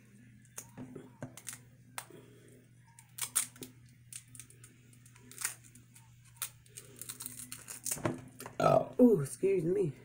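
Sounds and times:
seafood shells cracking: 1.3 - 2.1, 3.0 - 8.1.

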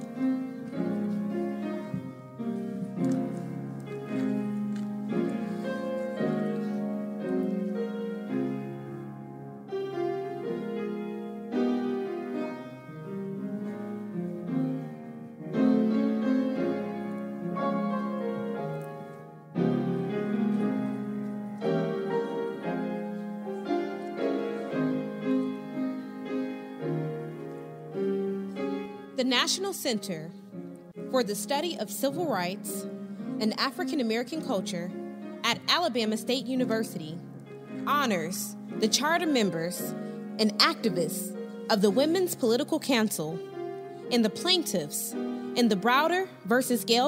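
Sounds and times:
slow classical piano piece: 0.0 - 47.0.

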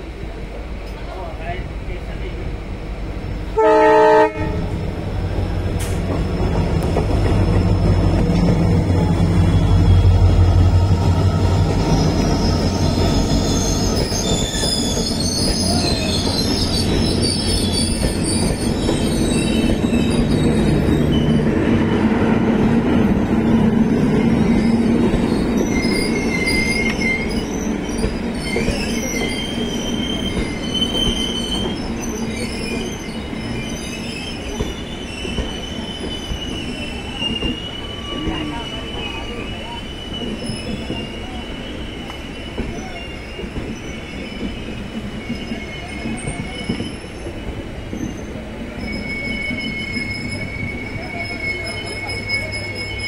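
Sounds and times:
wheels rumbling on rails: 4.5 - 38.9
steel wheels squealing: 5.4 - 53.0.

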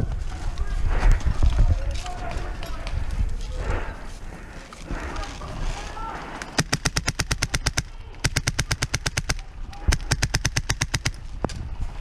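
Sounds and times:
airsoft rifle firing full-auto: 6.6 - 11.2.

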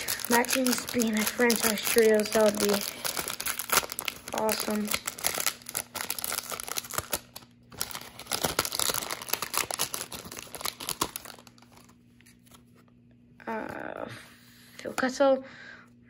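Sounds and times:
foil wrapper crinkling and tearing: 0.0 - 12.0.

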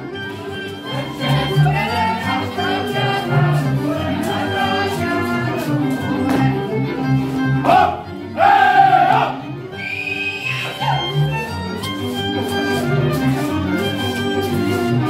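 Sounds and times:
live folk dance music: 0.0 - 15.0
voices singing along: 0.9 - 5.5.

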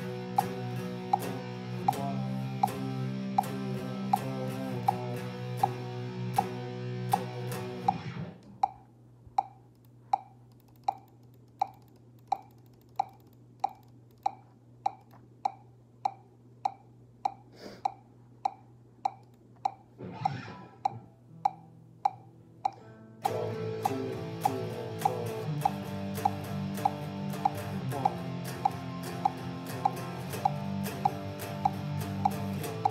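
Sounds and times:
electric guitar chords: 0.0 - 8.4, 20.0 - 32.9
metronome click: 0.2 - 8.8, 9.4 - 32.9.

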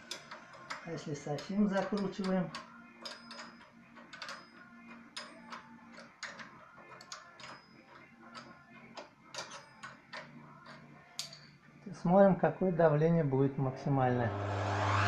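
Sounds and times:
metal tool clicking on screw: 0.0 - 11.6.

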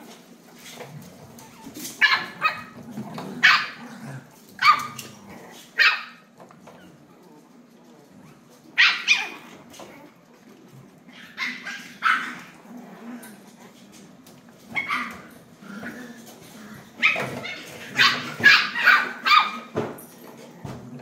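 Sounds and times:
small dogs yipping and barking: 1.4 - 2.8, 4.6 - 5.1, 8.8 - 9.9, 11.1 - 12.6, 14.7 - 15.4, 17.0 - 19.9.

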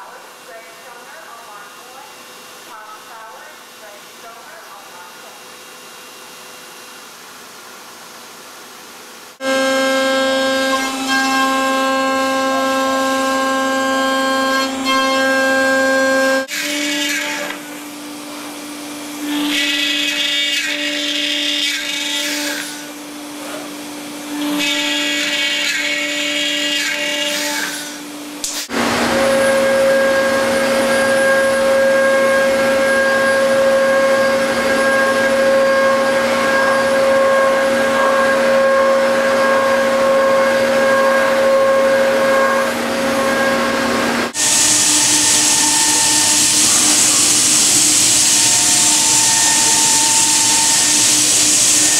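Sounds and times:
machine cutting noise: 9.4 - 51.9
router bit cutting wood: 9.4 - 51.9
router spindle whining: 27.7 - 51.9.

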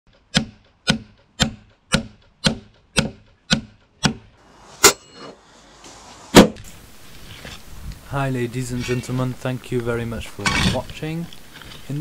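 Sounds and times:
hammer blows on wooden peg: 0.1 - 5.0.

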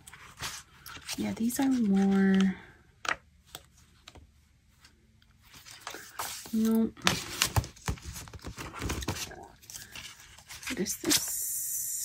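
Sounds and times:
paper rustling and sliding: 5.4 - 11.3.

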